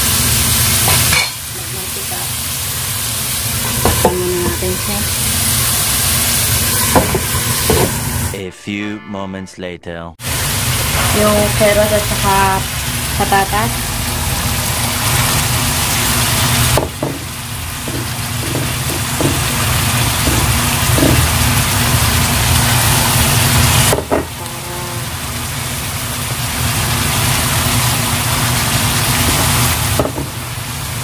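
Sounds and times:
food hissing in a pan: 0.0s - 6.7s.

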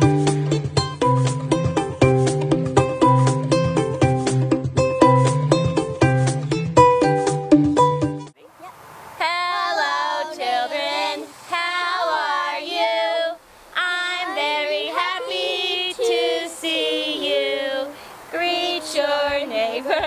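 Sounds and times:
women and children singing: 9.2s - 20.0s.

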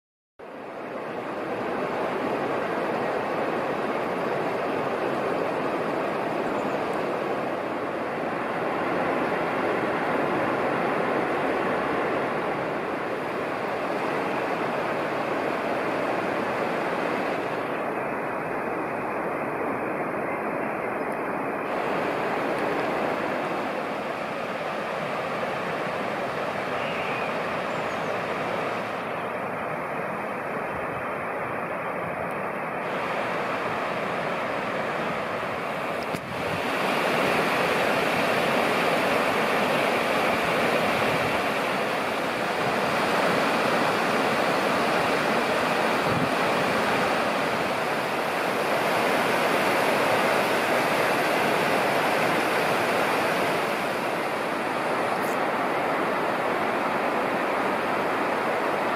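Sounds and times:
running water rushing: 0.4s - 58.9s
click: 36.0s - 36.3s.

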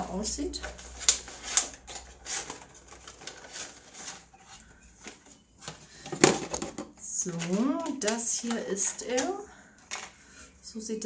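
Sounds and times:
packaging rustling and clicking: 0.6s - 10.2s
packaging snapping: 6.3s - 10.2s.

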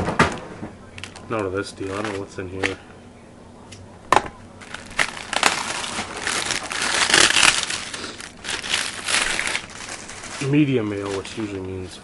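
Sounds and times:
paper envelope snapping: 4.6s - 11.3s
paper rustling and tearing: 4.6s - 11.8s.

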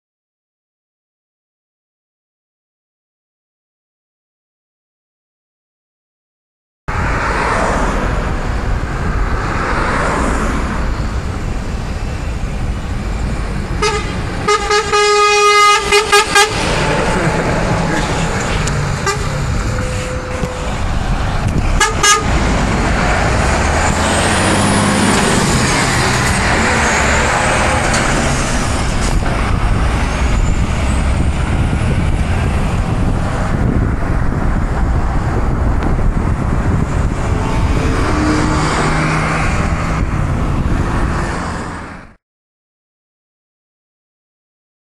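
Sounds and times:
truck diesel engine driving past: 6.9s - 42.0s
short air horn blasts: 13.8s - 16.6s, 19.0s - 20.7s, 21.8s - 22.4s.

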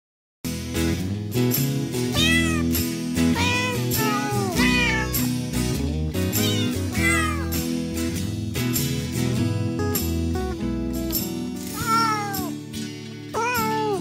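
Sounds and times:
background music: 0.5s - 14.0s
cat meowing: 2.1s - 2.8s, 3.4s - 5.4s, 6.4s - 7.6s, 11.7s - 12.6s, 13.3s - 14.0s.

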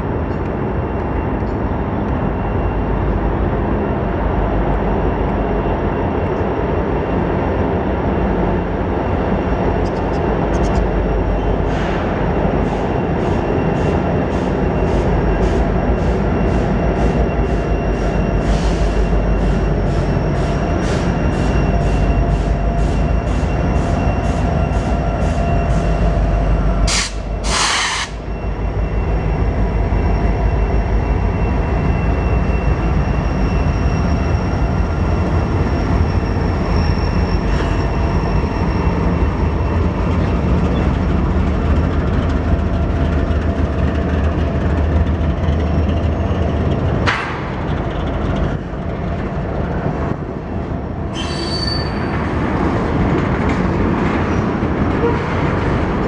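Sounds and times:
train wheels rumbling on rail: 0.0s - 56.0s
high wheel squeal: 8.6s - 47.1s, 51.1s - 53.0s.

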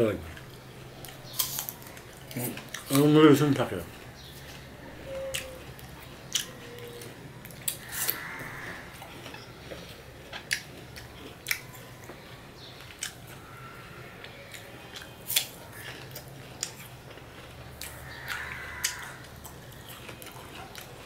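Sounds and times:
apple slices crunching: 0.4s - 3.7s.

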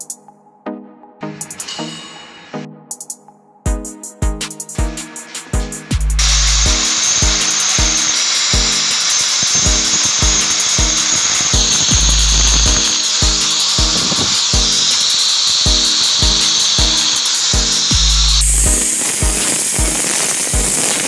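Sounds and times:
background music with steady beat: 0.0s - 21.0s
angle grinder boring into marble: 6.2s - 21.0s.

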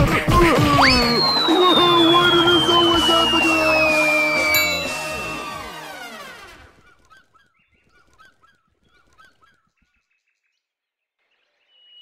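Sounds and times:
music: 0.0s - 6.8s.

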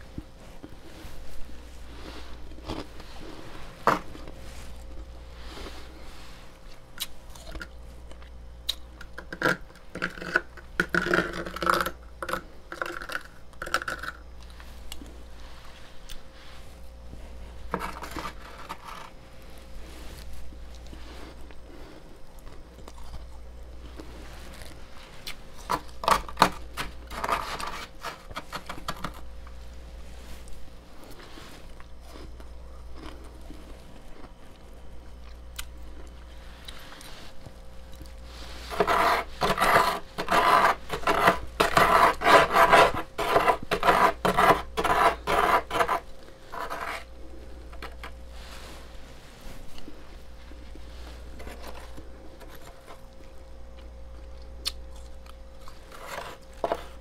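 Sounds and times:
metal spoon scraping frost: 17.3s - 19.2s, 25.6s - 29.3s, 38.2s - 48.9s, 55.7s - 57.0s.

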